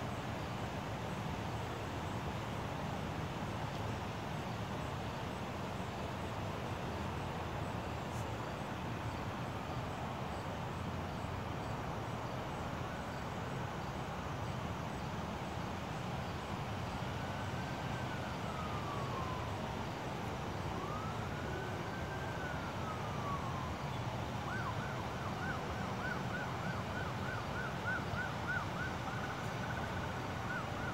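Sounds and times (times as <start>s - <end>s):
background noise: 0.0s - 30.9s
police siren: 16.7s - 30.9s.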